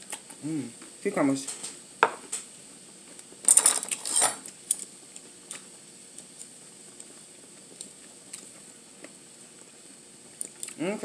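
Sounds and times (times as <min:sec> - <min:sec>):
dishes and utensils clattering: 0:03.5 - 0:04.4.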